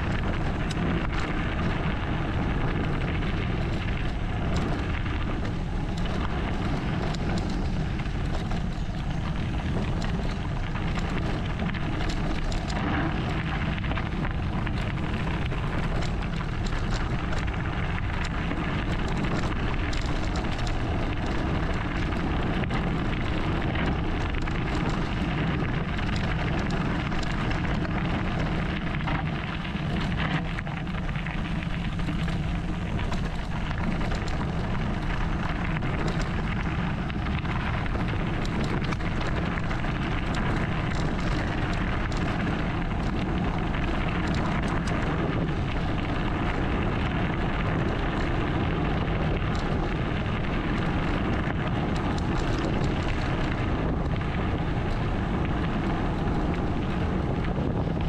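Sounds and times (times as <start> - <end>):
bike rattles and clicks: 0.0 - 58.0
bike tyres on gravel: 0.0 - 58.0
wind on microphone: 0.0 - 58.0.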